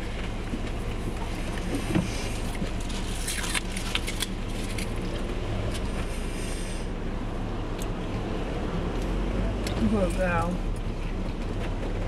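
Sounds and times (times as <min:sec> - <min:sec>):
car engine humming: 0:00.0 - 0:12.0.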